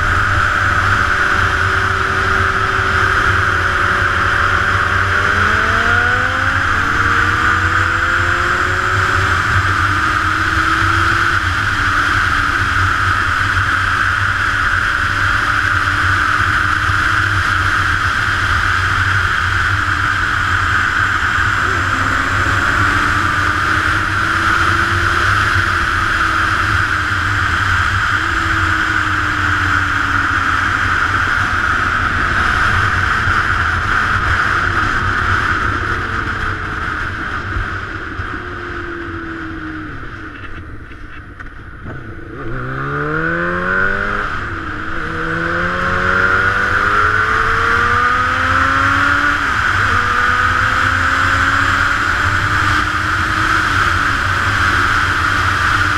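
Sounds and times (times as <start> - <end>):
motorcycle engine revving: 0.0 - 55.9
wind rush: 18.3 - 40.2.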